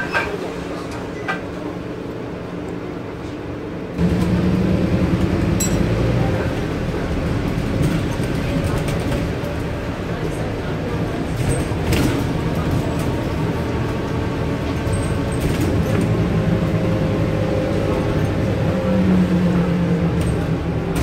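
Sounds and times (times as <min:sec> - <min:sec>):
bus diesel engine running: 0:00.0 - 0:21.0
bus body clicks and rattles: 0:07.0 - 0:16.5, 0:20.0 - 0:21.0.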